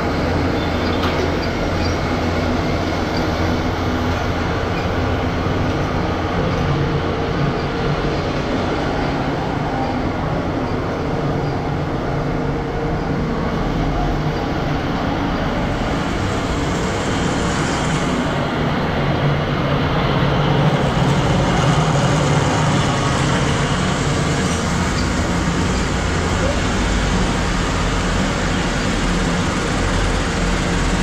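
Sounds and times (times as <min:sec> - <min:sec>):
road traffic rumble: 0:00.0 - 0:31.0.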